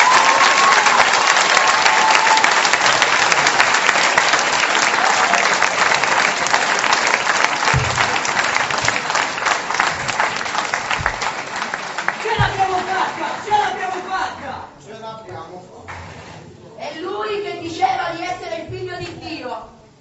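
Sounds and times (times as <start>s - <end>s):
audience applauding: 0.0s - 14.3s
dull low thump: 7.7s - 8.2s, 12.4s - 12.9s.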